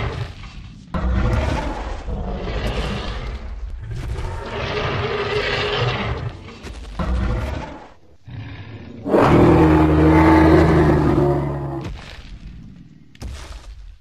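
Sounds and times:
dinosaur roar: 1.0s - 11.9s.

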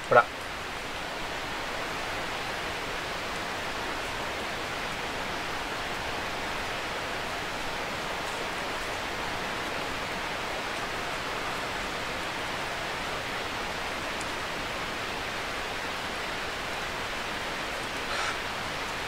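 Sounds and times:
stream water flowing: 0.0s - 19.0s.

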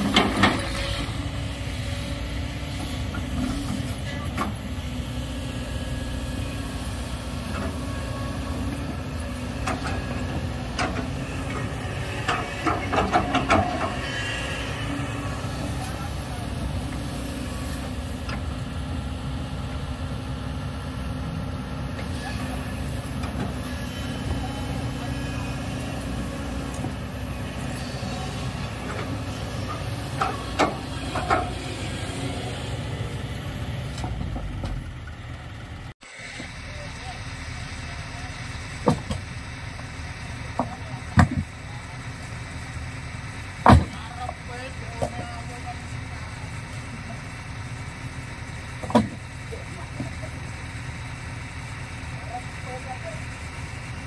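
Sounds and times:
excavator digging sand and rock: 0.0s - 35.3s
diesel engines running: 0.0s - 54.0s.

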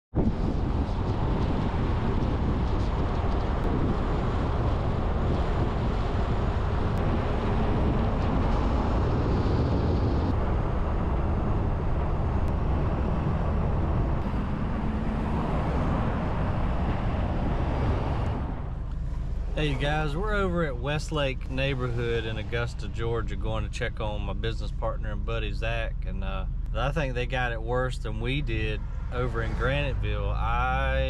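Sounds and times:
tyre and wind noise: 0.1s - 23.4s.

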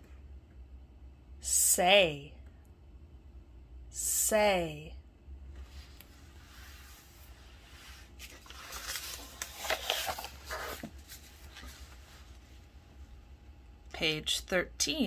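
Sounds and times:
paper pages rustling: 6.6s - 12.6s.

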